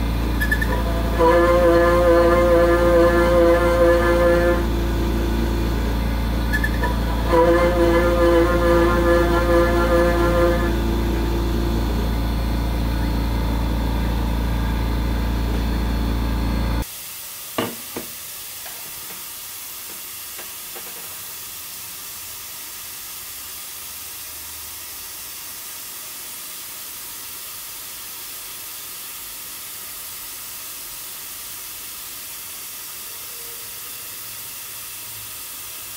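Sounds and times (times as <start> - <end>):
loud steady held tones: 0.0 - 16.8.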